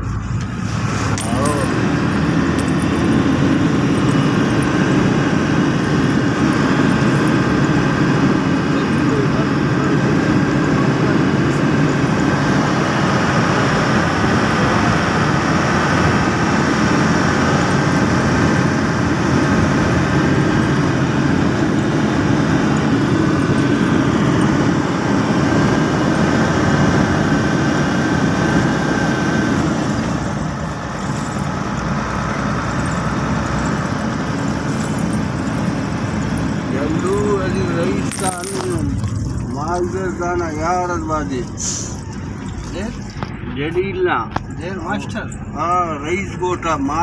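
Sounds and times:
road and wind noise: 0:00.0 - 0:47.0
truck diesel engine running: 0:00.0 - 0:47.0.

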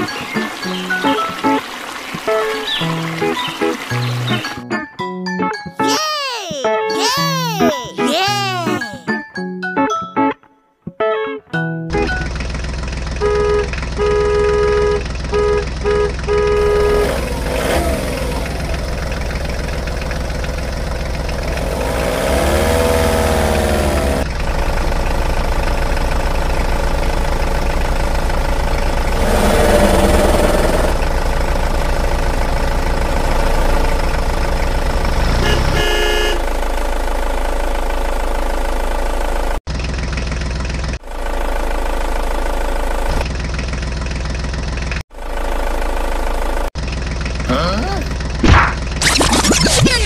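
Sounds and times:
heavy vehicle engine running: 0:11.9 - 0:49.6
short horn honks: 0:13.2 - 0:17.2, 0:35.3 - 0:36.5.

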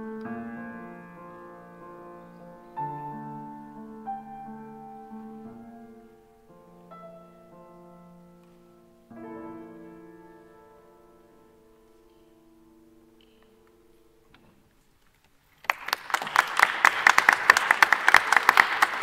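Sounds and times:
piano chords: 0:00.0 - 0:14.7.

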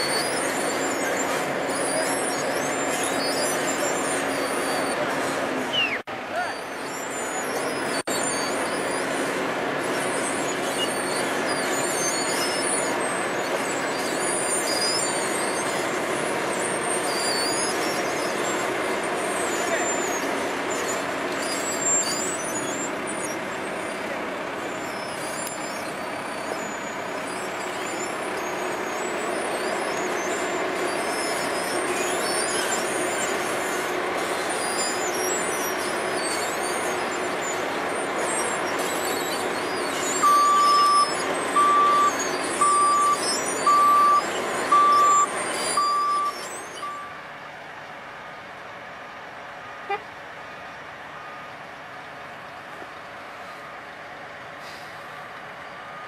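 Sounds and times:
diesel engines running: 0:00.0 - 0:56.0
reversing alarm beeping: 0:39.2 - 0:47.2.

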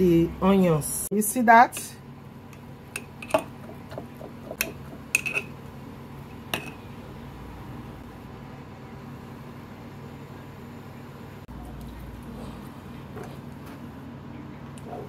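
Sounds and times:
spoon clinking against glass jar: 0:04.6 - 0:05.5.

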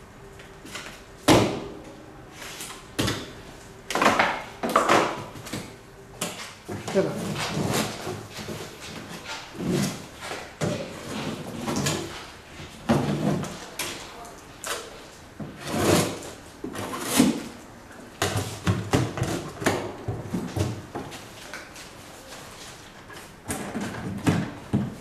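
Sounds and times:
metal scraper on metal floor: 0:15.6 - 0:17.5.

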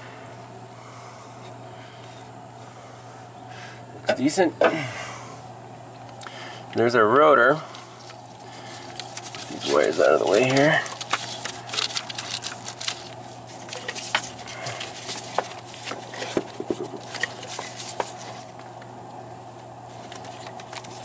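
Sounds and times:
rubber and plastic rustling: 0:07.7 - 0:18.8, 0:19.9 - 0:21.0.

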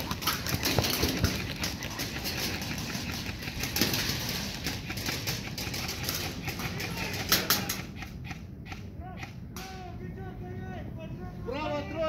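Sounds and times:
airsoft guns firing: 0:00.2 - 0:08.2.

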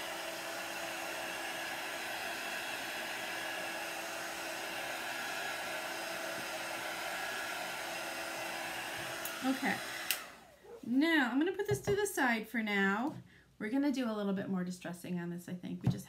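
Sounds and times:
heat tool blowing air: 0:00.0 - 0:10.5.

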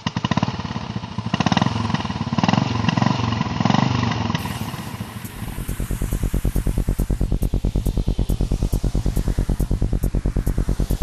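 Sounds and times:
motorcycle engine revving: 0:00.0 - 0:11.0
music: 0:04.5 - 0:11.0.

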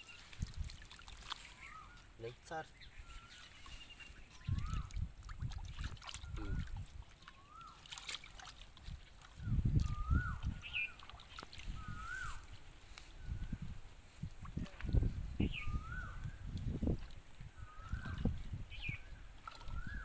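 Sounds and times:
muddy water splashing: 0:00.0 - 0:20.0
bird whistled call: 0:01.5 - 0:02.1, 0:02.9 - 0:05.0, 0:07.2 - 0:07.8, 0:09.4 - 0:11.0, 0:11.7 - 0:12.5, 0:15.4 - 0:16.4, 0:17.6 - 0:20.0.

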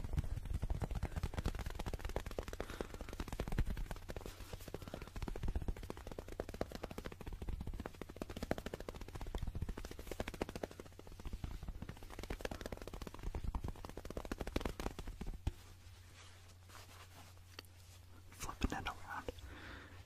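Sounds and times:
fast fingertip tapping: 0:00.0 - 0:15.7.

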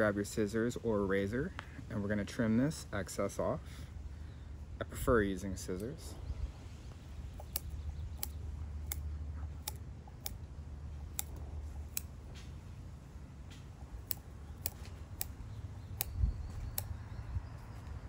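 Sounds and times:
small scissors snipping hair: 0:07.3 - 0:12.6, 0:13.4 - 0:17.1.

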